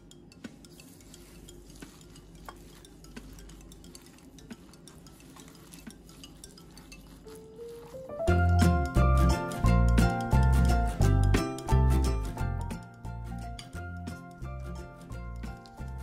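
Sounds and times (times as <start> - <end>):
hand squishing wet filling: 0.4 - 11.4.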